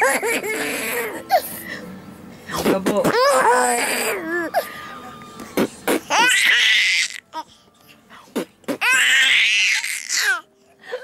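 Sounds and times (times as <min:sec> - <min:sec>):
baby laughing in squeals: 0:00.0 - 0:01.4, 0:06.0 - 0:07.2, 0:08.8 - 0:10.4.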